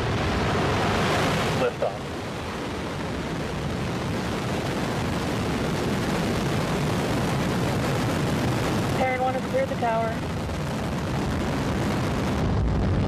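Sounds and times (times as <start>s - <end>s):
rocket exhaust roar: 0.0s - 13.0s.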